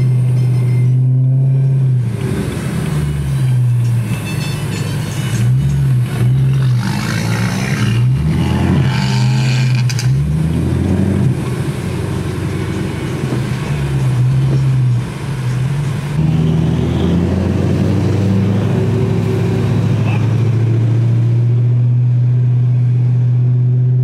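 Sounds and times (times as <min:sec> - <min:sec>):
car engines revving: 0:00.0 - 0:24.0.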